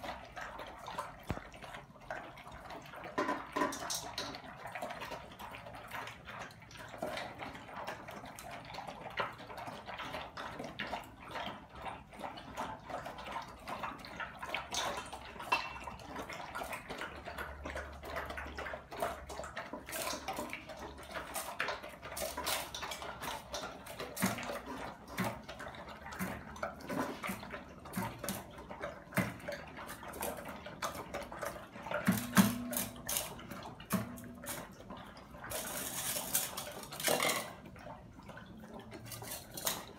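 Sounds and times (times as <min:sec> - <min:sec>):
dogs chewing and slurping: 0:00.0 - 0:39.9
metal bowls clanking: 0:03.1 - 0:04.4, 0:14.7 - 0:16.1, 0:19.9 - 0:37.7.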